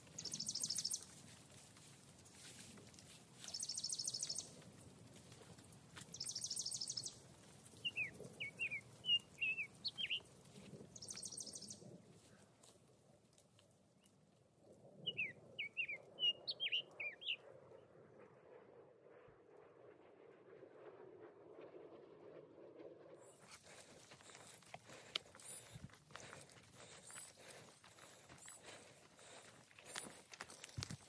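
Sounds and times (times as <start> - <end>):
bird sharp chirping notes: 15.1 - 17.4.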